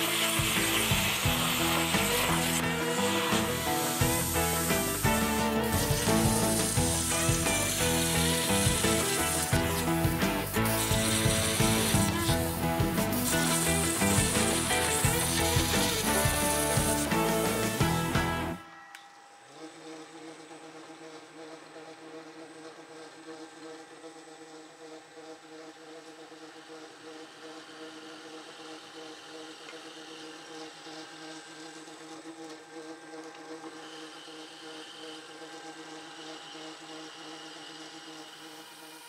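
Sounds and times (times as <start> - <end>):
milling machine motor hum: 0.0 - 18.8, 19.7 - 39.0
drill cutting steel: 0.0 - 39.0.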